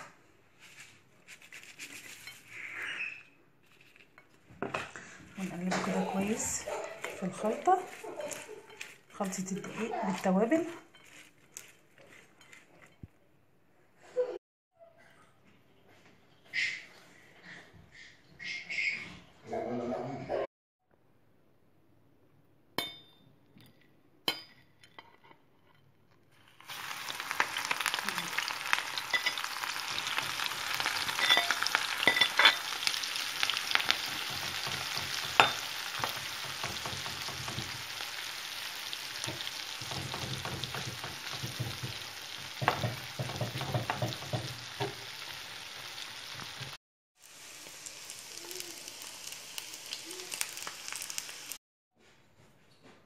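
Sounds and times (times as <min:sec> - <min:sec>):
metal spoon scraping pan: 0:01.3 - 0:13.1, 0:28.4 - 0:37.8
shrimp sizzling in hot oil: 0:26.4 - 0:51.6.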